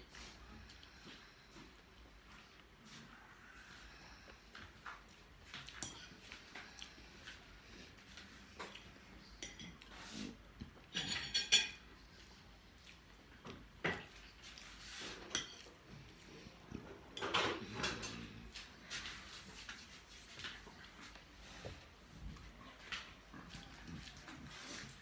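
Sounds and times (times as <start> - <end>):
fork clinking and scraping on plate: 10.8 - 11.9, 15.0 - 15.7.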